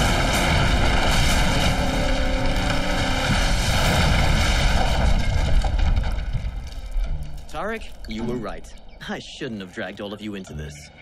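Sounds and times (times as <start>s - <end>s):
wooden tower collapsing roar: 0.0s - 8.6s.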